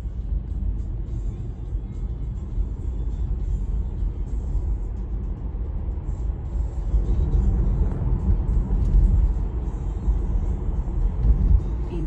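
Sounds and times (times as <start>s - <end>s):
road and tyre rumble in car: 0.0s - 12.0s.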